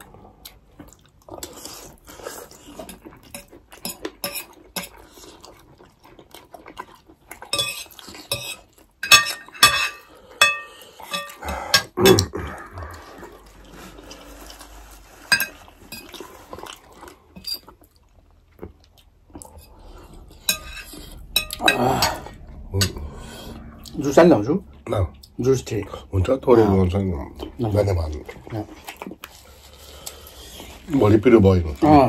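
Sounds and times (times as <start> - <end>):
cutlery clinking on ceramic plates: 7.5 - 11.9.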